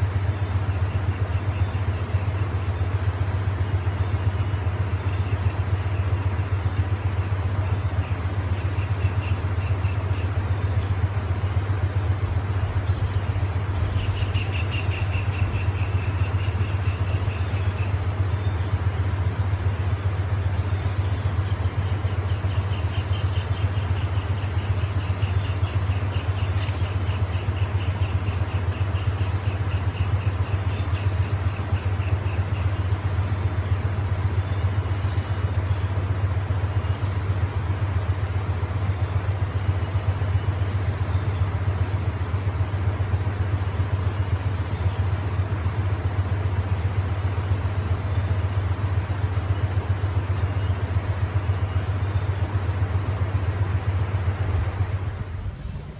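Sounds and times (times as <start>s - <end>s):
faint high whines: 0.0s - 55.9s
low rumble: 10.6s - 17.8s, 54.3s - 55.9s.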